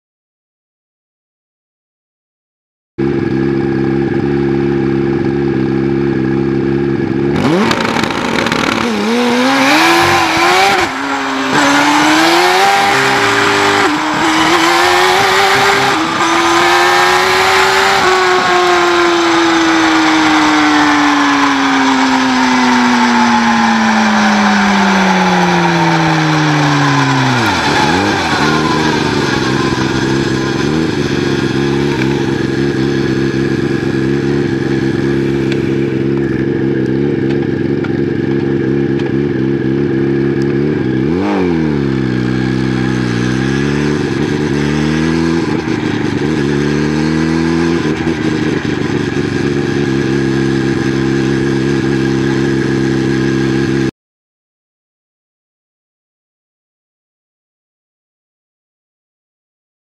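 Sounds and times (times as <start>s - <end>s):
motorcycle engine revving: 3.0s - 53.9s.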